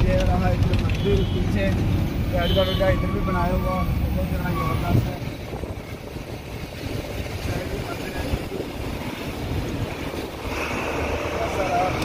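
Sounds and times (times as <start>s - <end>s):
truck engine and road noise: 0.0s - 12.0s.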